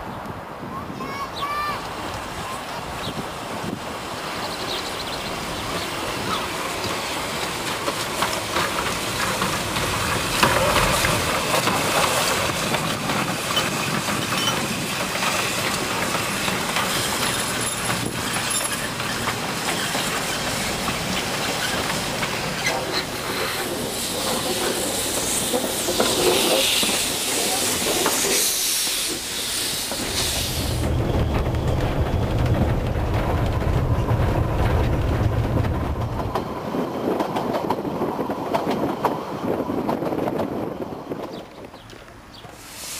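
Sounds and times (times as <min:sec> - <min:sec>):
train wheels on rails: 0:01.0 - 0:42.9
steam hissing: 0:05.3 - 0:31.4, 0:42.4 - 0:42.9
clicking over rail joints: 0:06.8 - 0:28.4.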